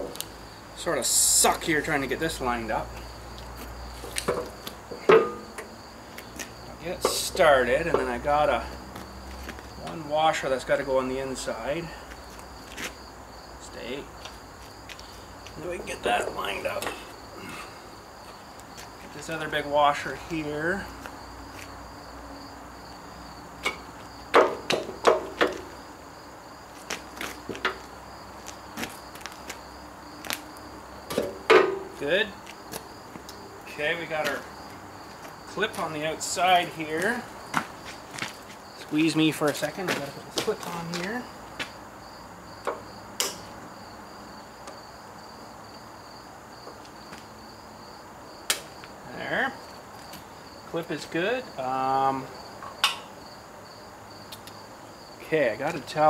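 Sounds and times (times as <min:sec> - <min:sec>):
high insect drone: 0:00.0 - 0:56.0
metal washer and pin clanking: 0:05.0 - 0:05.7.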